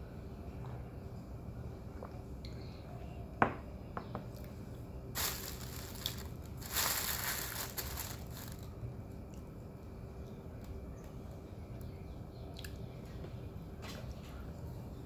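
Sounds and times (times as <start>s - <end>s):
plastic bag rustling: 5.2s - 8.7s.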